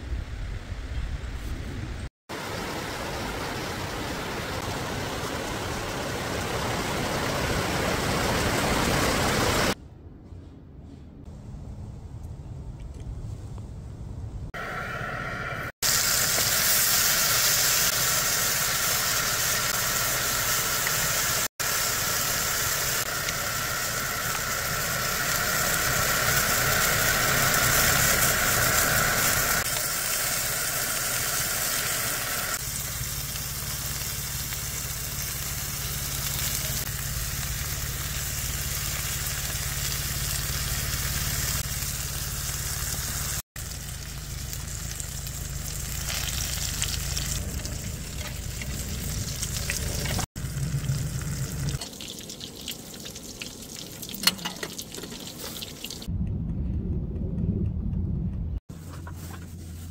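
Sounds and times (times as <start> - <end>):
meat and vegetables sizzling: 15.7 - 56.1.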